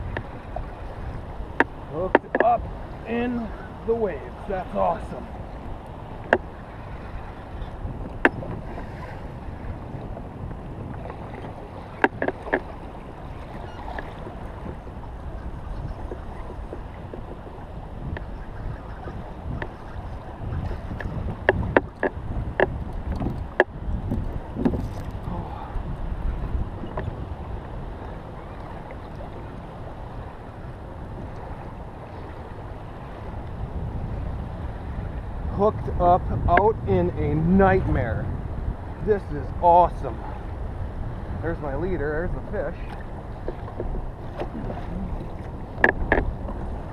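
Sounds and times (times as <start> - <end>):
choppy water lapping: 0.0 - 46.9
wind: 0.0 - 46.9
sharp knocks on kayak: 21.0 - 23.7, 24.6 - 25.1, 42.9 - 46.3.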